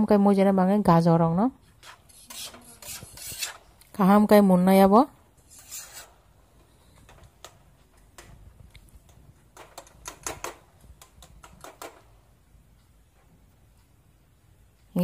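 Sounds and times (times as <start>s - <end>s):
metal spatula scraping a pan: 1.6s - 3.8s, 5.5s - 6.4s.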